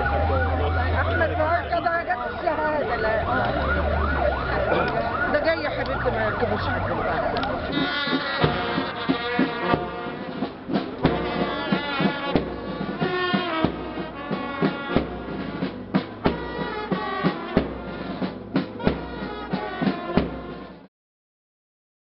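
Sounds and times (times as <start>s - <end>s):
brass band music: 0.0s - 20.9s
drum strikes: 7.6s - 20.9s.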